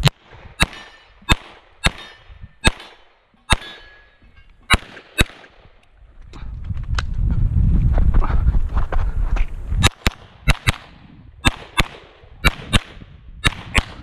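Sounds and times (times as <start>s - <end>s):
pistol shots with echo: 0.0s - 4.0s, 4.7s - 5.6s, 9.8s - 14.0s.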